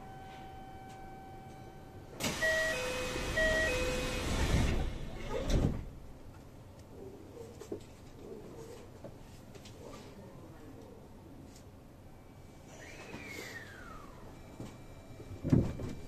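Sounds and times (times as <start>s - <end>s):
two-note door chime: 0.0s - 4.2s
sliding doors rushing: 2.2s - 6.0s.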